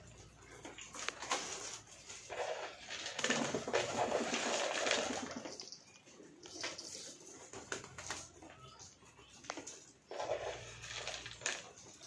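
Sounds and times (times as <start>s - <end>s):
pigeons scuffling while feeding: 0.0s - 12.0s
pigeons flapping wings: 1.0s - 5.7s, 7.4s - 8.4s.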